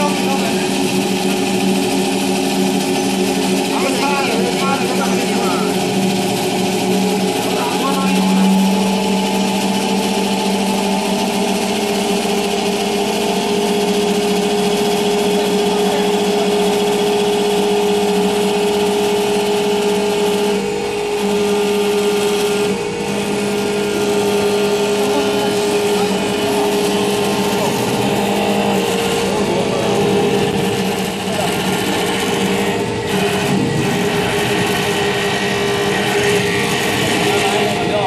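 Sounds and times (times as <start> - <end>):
lathe motor hum: 0.0 - 38.0
wood being cut: 0.0 - 38.0.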